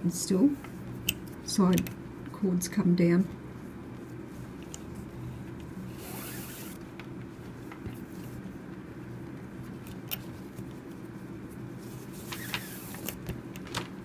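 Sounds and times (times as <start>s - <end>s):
steady low hum: 0.0s - 14.0s
cord strands rustling and clicking: 3.9s - 14.0s.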